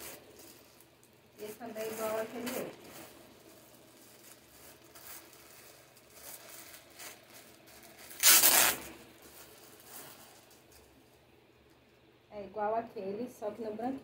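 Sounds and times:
plastic bag tearing: 0.0 - 11.0
plastic bags crinkling: 0.0 - 11.2.

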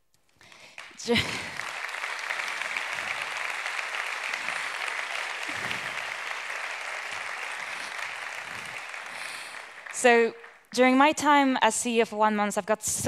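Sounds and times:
audience applauding: 0.4 - 10.7.

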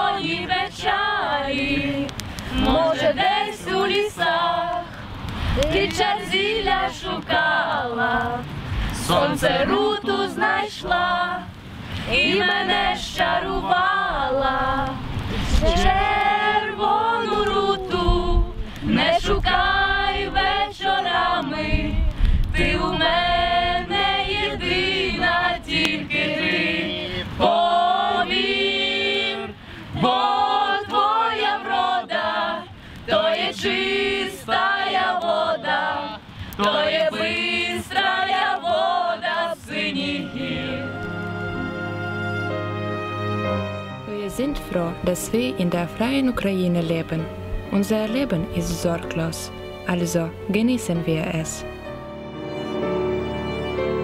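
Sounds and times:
group of people singing: 0.0 - 41.8.

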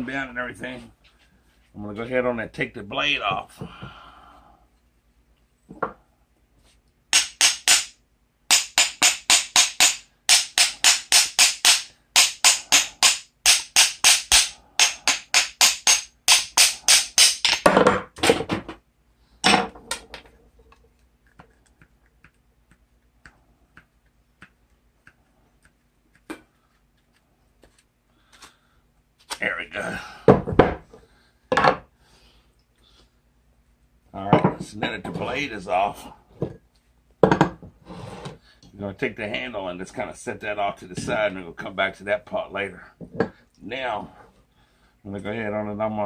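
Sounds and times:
hammer blows on hatchet: 7.1 - 17.7.

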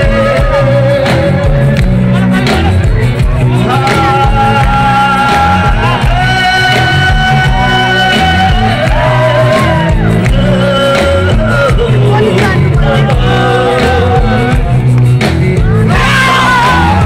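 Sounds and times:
folk-rock band playing: 0.0 - 17.0
singer holding long notes: 0.0 - 17.0.

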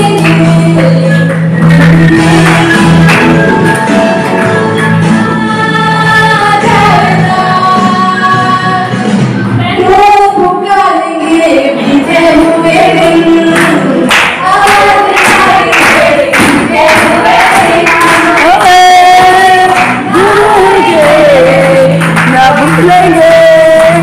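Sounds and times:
woman singing into microphone: 0.0 - 2.5, 5.2 - 24.0
people clapping along: 0.0 - 5.3, 11.8 - 24.0.

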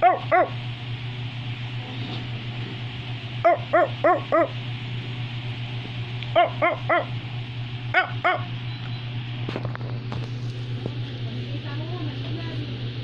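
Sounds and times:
dog barking: 0.0 - 0.6, 3.4 - 4.6, 6.3 - 7.2, 7.9 - 8.5
steady low hum: 0.0 - 13.0.

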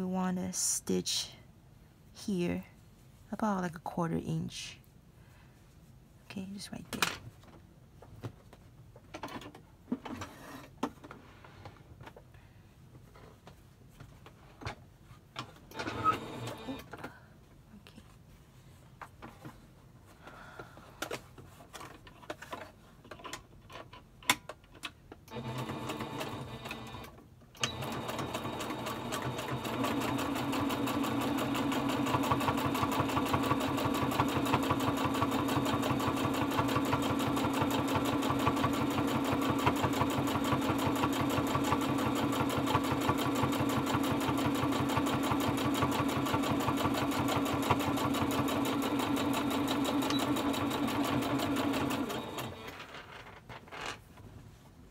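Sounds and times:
sewing machine stitching: 15.7 - 16.9, 25.3 - 52.9.

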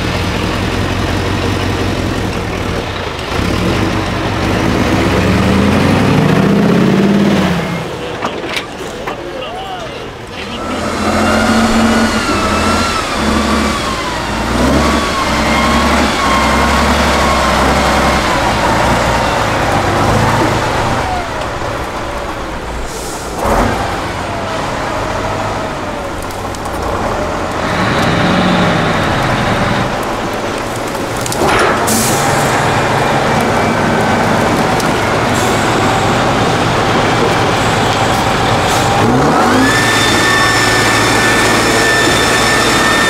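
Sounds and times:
diesel truck engine under load: 0.0 - 43.0.

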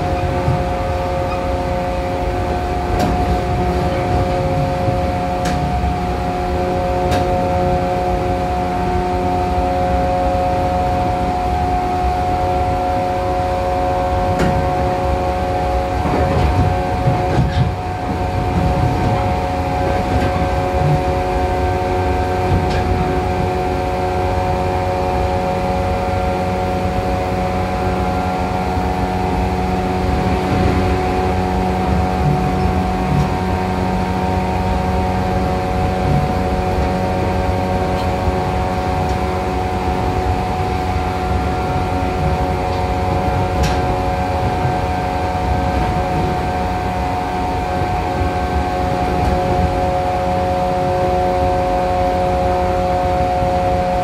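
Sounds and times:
train motor whine: 0.0 - 54.0
wheel and rail rumble: 0.0 - 54.0.

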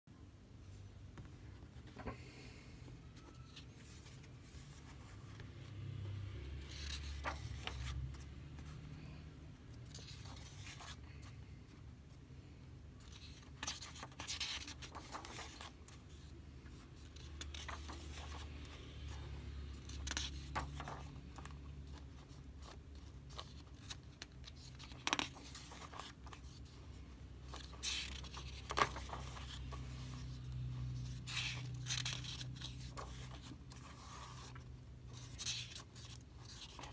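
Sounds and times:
paper pages rustling: 6.5 - 8.8, 9.8 - 11.6, 13.0 - 36.9.

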